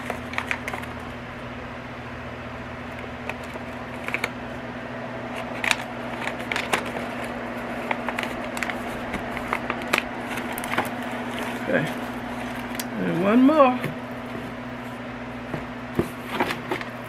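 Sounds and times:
packaging crinkling and clicks: 0:00.0 - 0:01.1, 0:02.9 - 0:04.4, 0:05.3 - 0:13.2
steady low hum: 0:00.0 - 0:17.0.

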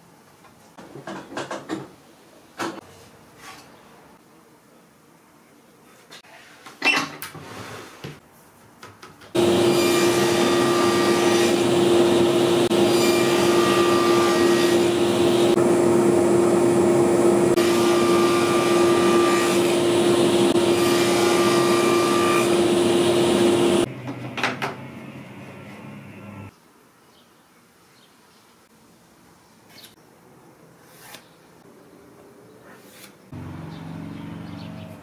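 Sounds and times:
saw blade whine cutting wood: 0:09.4 - 0:23.9
table saw running: 0:09.4 - 0:23.9.

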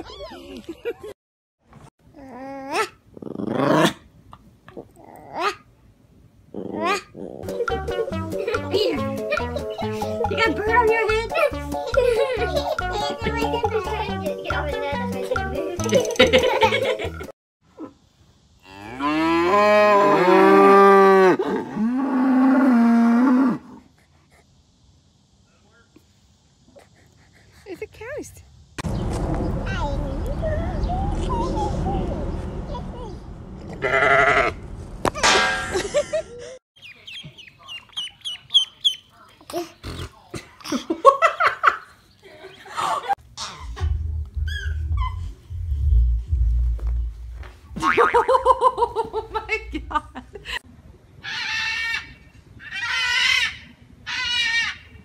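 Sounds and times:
baby giggling and babbling: 0:06.8 - 0:16.6
high falling squeaks: 0:43.4 - 0:46.0
low steady rumble: 0:43.6 - 0:48.7.

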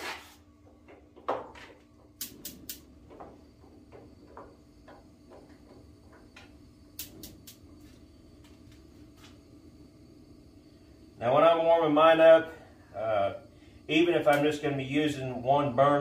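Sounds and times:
igniter clicks: 0:01.8 - 0:07.8, 0:14.2 - 0:14.6
burning gas rush: 0:02.1 - 0:16.0.

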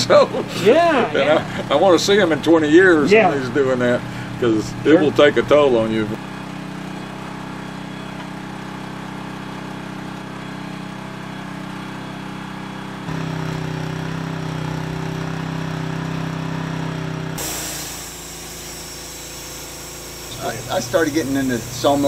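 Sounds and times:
sawmill engine running: 0:00.0 - 0:22.0
high hiss: 0:17.4 - 0:22.0.

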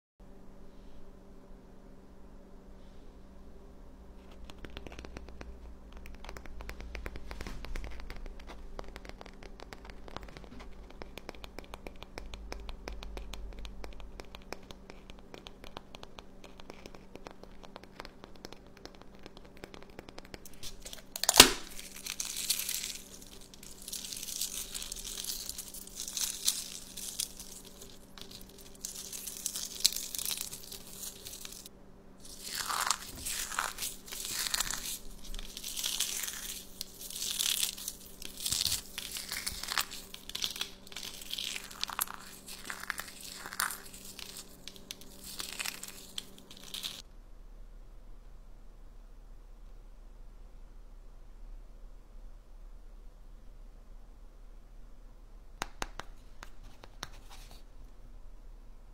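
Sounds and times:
eggshell crunching: 0:04.2 - 0:47.0
eggshell cracking: 0:04.3 - 0:47.0
fingers clicking on eggshell: 0:04.3 - 0:47.0, 0:55.6 - 0:57.2.

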